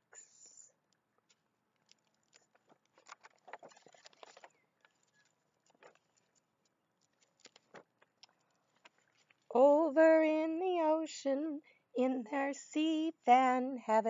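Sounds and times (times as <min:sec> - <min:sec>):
small clicks: 0:00.9 - 0:09.5
paper page rustling: 0:01.3 - 0:09.5.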